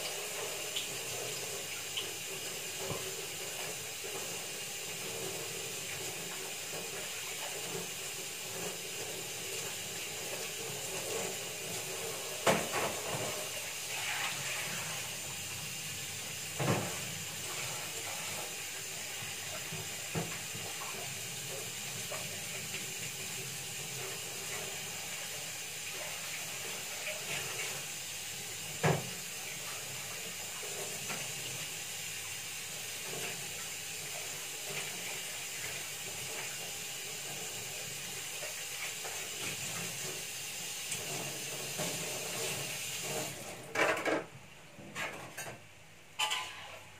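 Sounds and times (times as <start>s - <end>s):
food sizzling in oil: 0.0s - 43.4s, 46.2s - 46.9s
kitchen utensils knocking: 46.2s - 46.7s.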